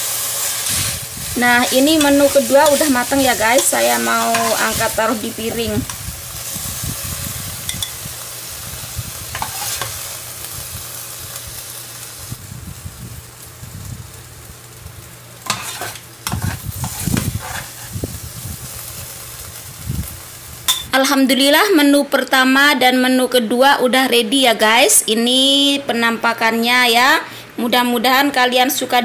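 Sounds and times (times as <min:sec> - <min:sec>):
stir-fry sizzling in a pan: 0:00.0 - 0:21.9
spatula scraping a pan: 0:00.2 - 0:05.2, 0:09.3 - 0:10.1, 0:15.4 - 0:18.0.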